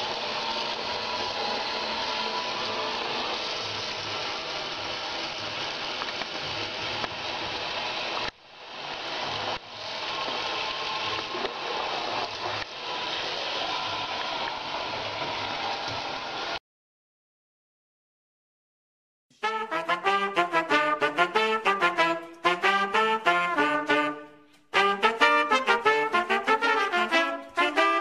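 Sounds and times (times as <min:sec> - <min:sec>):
tap water running into sink: 0:00.0 - 0:16.6.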